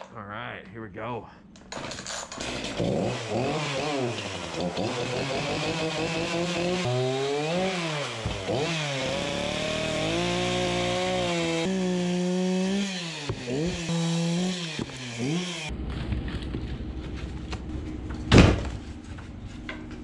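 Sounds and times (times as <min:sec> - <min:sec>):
chainsaw engine revving: 0:01.8 - 0:15.7.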